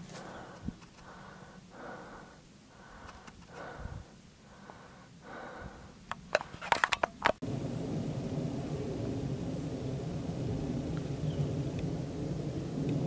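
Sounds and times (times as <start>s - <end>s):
low rumbling noise: 0.0s - 6.5s, 7.4s - 13.0s
sharp clicks: 3.0s - 3.7s.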